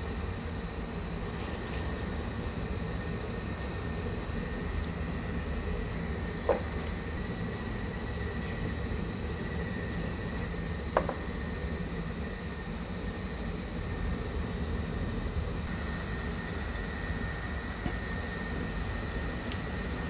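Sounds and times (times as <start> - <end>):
low hum and hiss: 0.0 - 20.0.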